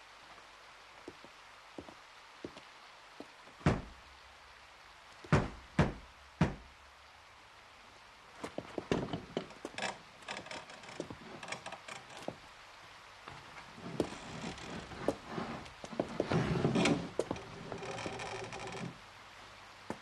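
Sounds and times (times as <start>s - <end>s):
knocking on wooden gate: 3.6s - 4.0s, 5.3s - 6.7s
gate scraping and clattering: 8.8s - 12.4s, 13.3s - 19.0s.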